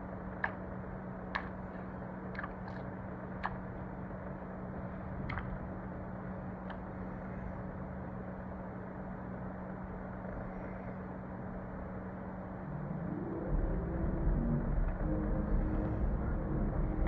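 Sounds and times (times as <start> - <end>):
constant hiss: 0.0 - 17.0
steady background hum: 0.0 - 17.0
faint clicks: 0.4 - 0.6, 1.3 - 3.6, 5.2 - 5.6.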